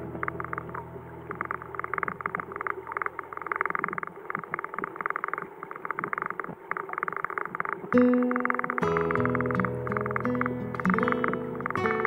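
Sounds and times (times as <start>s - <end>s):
underwater stream rushing: 0.0s - 12.0s
small clicks and bubbling: 0.2s - 12.0s.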